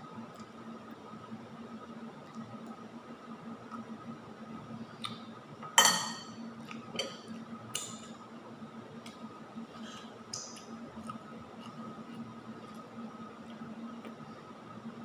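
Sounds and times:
cutlery clinking on dishes: 5.8 - 6.4.

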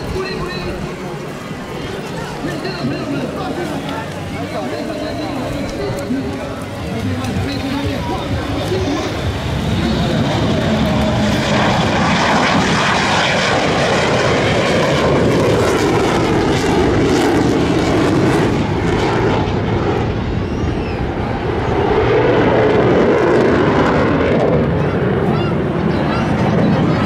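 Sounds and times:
jet fighter afterburner roar: 0.0 - 27.0.

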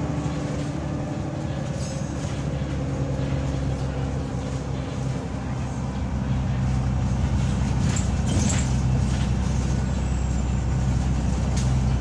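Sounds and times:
bus diesel engine droning: 0.0 - 12.0.

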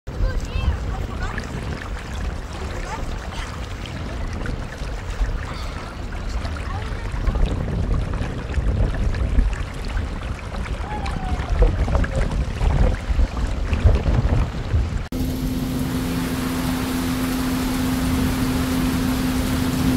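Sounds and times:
rushing floodwater: 0.1 - 19.9
wind buffeting microphone: 0.1 - 19.9.

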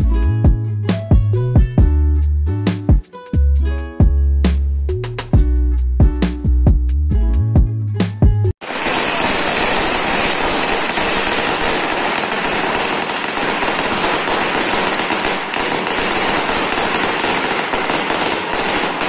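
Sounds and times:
firecrackers crackling: 8.6 - 19.0.

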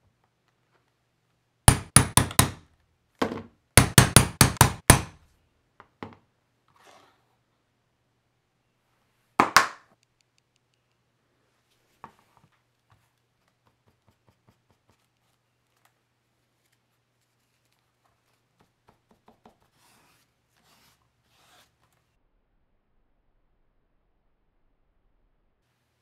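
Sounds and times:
small clicks: 9.9 - 11.1
hand rubbing leather: 16.5 - 22.0.

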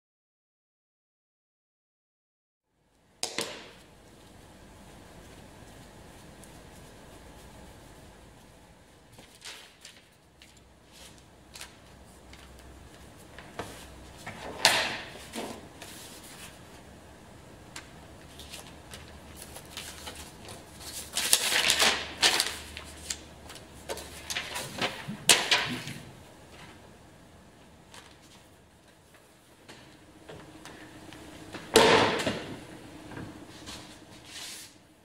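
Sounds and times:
paper rustling and sliding: 5.2 - 16.8, 18.2 - 26.8, 33.4 - 34.8.

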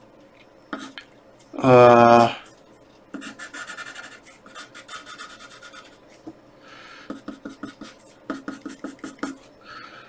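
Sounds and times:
pencil scratching on paper: 3.2 - 6.0, 7.1 - 9.5.

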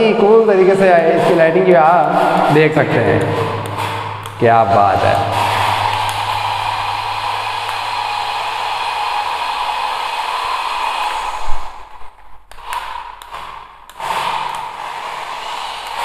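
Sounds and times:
toy car motor whirring: 13.9 - 16.0.

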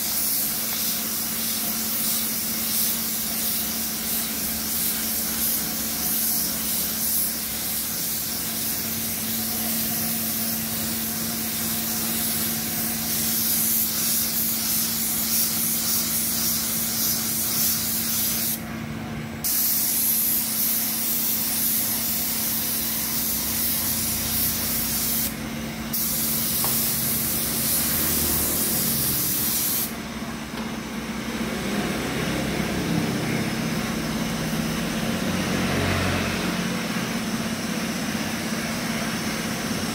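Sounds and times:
paint spray gun hissing: 0.0 - 18.7, 19.4 - 30.0.

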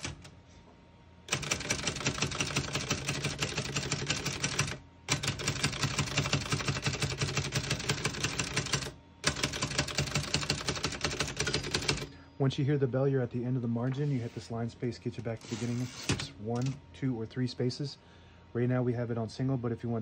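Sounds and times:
typewriter keystroke clicks: 0.0 - 0.3, 1.3 - 12.1.

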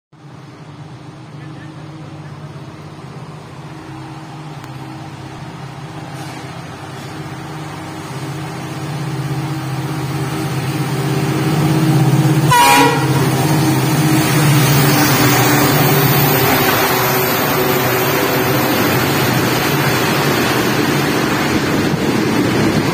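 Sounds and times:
diesel locomotive engine: 0.2 - 22.9
rumble of train wagons: 0.2 - 22.9
train horn toot: 12.4 - 13.3.

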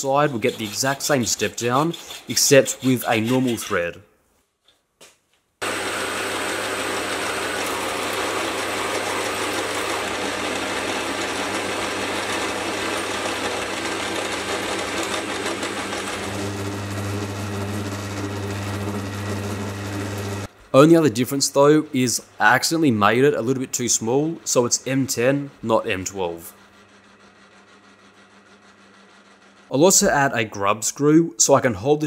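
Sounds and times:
lathe motor hum: 5.6 - 20.6, 24.0 - 29.7.

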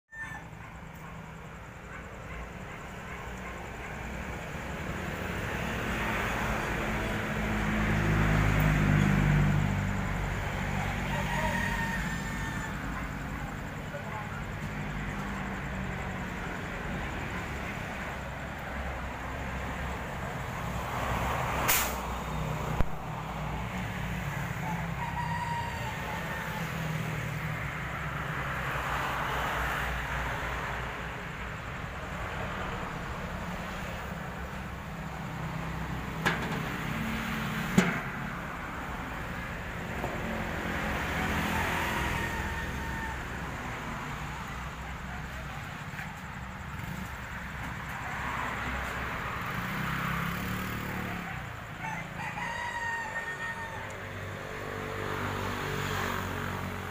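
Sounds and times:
rooster crowing: 0.1 - 2.7, 7.0 - 15.2, 24.2 - 27.8, 38.8 - 45.5, 49.4 - 56.8.

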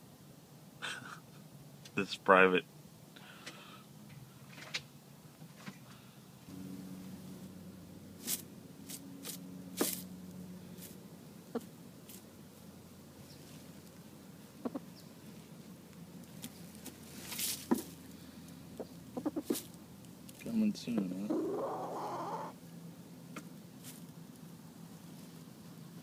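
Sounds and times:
hen crooning hum: 2.4 - 26.0
straw rustling: 6.5 - 20.5, 23.8 - 25.6.

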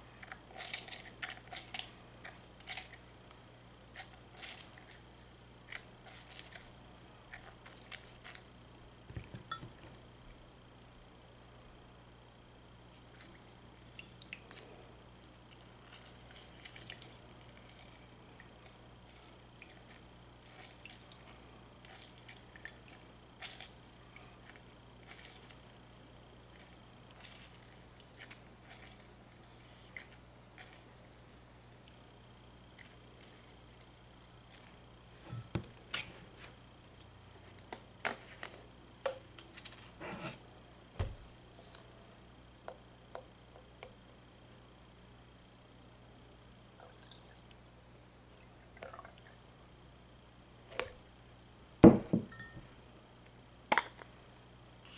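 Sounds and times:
wet squishes of lemon pulp: 15.3 - 31.2
deep thump: 51.8 - 52.3
knocks: 51.8 - 52.3.

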